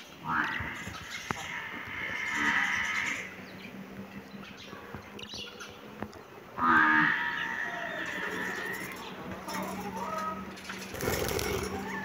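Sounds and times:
long animal calls: 0:00.2 - 0:03.4, 0:06.6 - 0:12.0.

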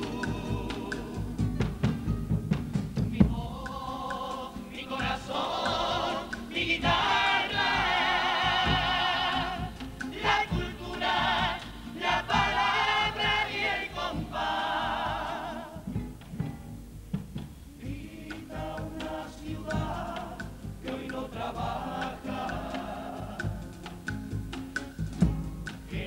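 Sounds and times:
male chorus singing in harmony: 0:00.0 - 0:01.5, 0:03.1 - 0:16.0, 0:17.8 - 0:24.0.

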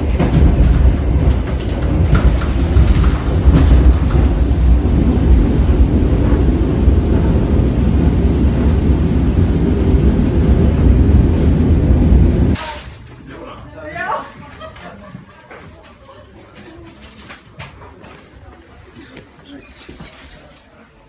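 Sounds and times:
electric train rumbling: 0:00.0 - 0:12.6.

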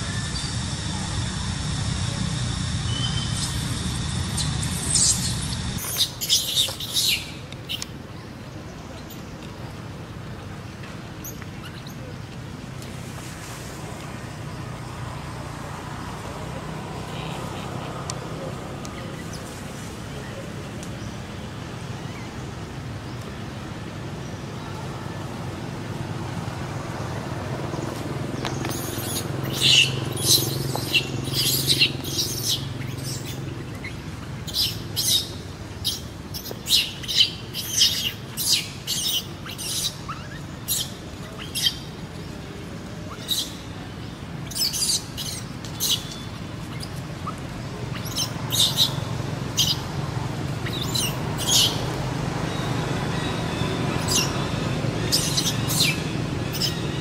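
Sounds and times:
low steady hum: 0:00.0 - 0:05.8.

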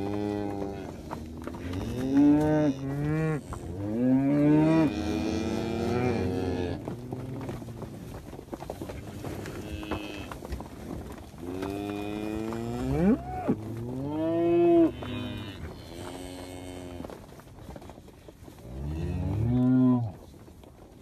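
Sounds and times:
calves mooing: 0:00.0 - 0:07.9, 0:09.2 - 0:10.5, 0:11.4 - 0:17.2.

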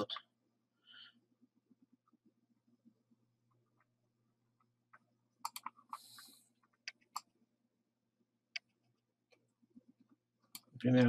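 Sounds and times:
computer mouse clicks: 0:05.4 - 0:07.3.

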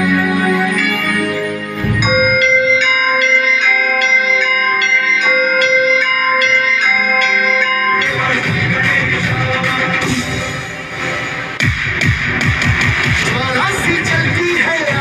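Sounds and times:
bell chimes in music: 0:00.0 - 0:10.1.

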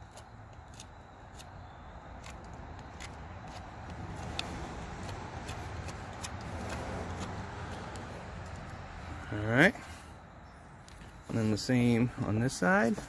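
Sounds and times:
knife scraping wooden stick: 0:00.0 - 0:08.5.

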